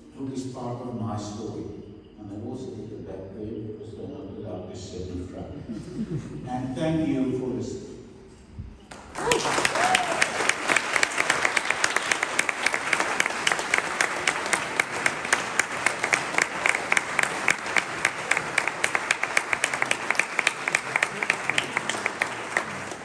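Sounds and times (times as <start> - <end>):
audience applauding: 8.9 - 23.0.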